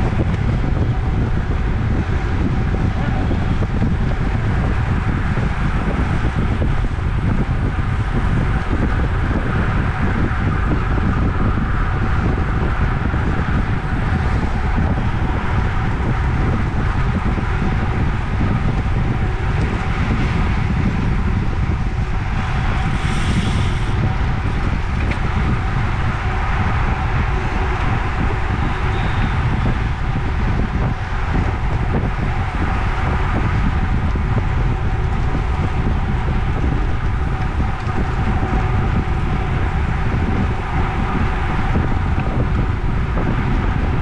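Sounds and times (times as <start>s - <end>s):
wind rushing over microphone: 0.0s - 44.0s
high-pitched buzz: 17.8s - 35.0s.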